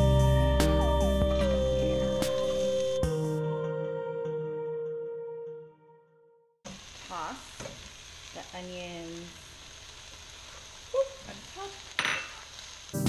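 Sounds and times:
vegetables sizzling in a skillet: 6.7 - 13.0.

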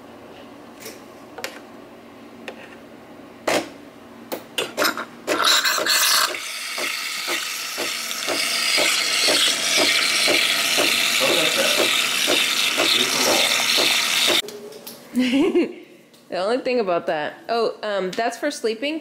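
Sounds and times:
coffee machine pump pulsing hiss: 5.4 - 14.4.

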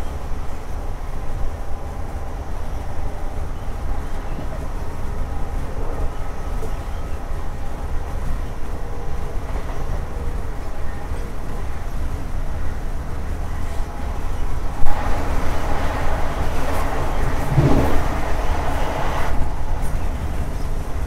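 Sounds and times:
train wheels on rails: 0.0 - 21.0
heavy low rumble: 12.3 - 21.0
diesel engine running: 12.6 - 21.0.

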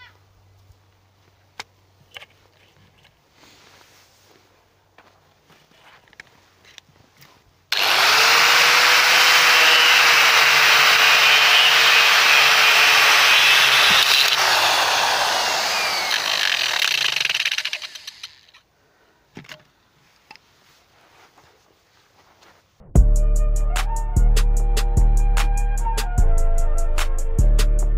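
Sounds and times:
angle grinder whine: 7.7 - 18.6.

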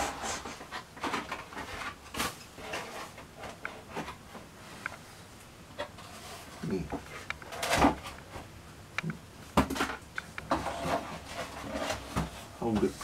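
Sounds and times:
foam parts knocking and rustling: 0.0 - 4.6, 9.5 - 13.0.

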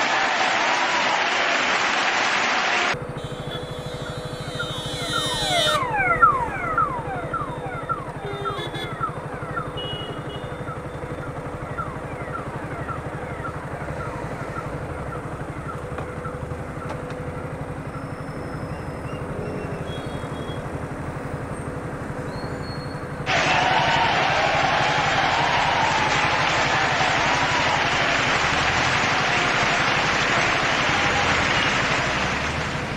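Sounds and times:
motorcycle engine running: 3.0 - 32.9
short falling whines: 3.1 - 9.6.

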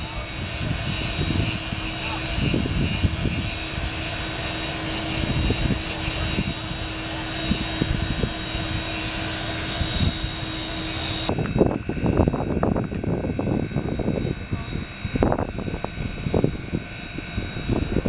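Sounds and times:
steady hum: 0.0 - 18.0
steam locomotive hissing and rumbling: 0.0 - 18.0.

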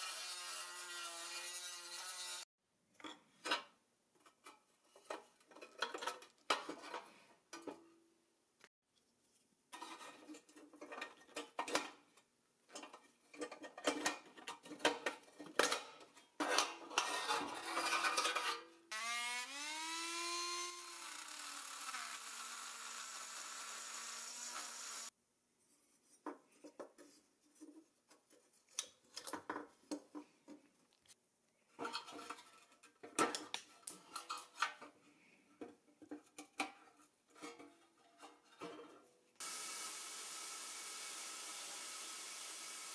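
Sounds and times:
handheld power tool whining: 18.9 - 25.1, 39.4 - 42.9.

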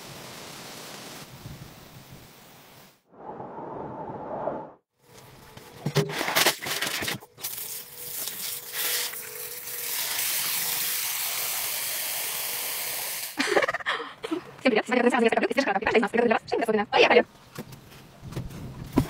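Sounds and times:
hose water running into metal basin: 6.4 - 13.4.

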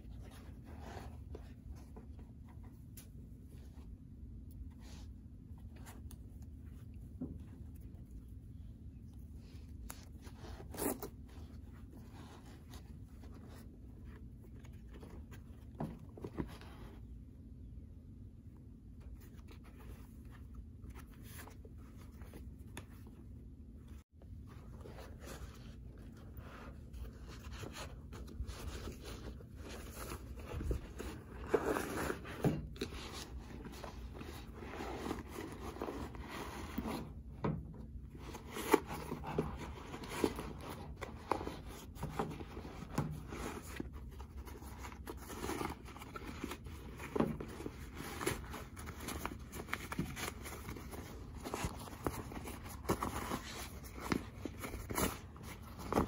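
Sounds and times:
rustling of cloth and suede: 0.0 - 4.0, 19.0 - 37.3, 38.0 - 56.0.

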